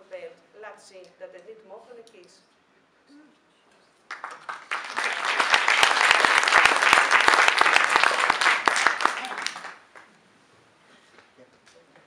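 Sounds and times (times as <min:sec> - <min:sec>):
audience applauding: 0:04.1 - 0:10.1.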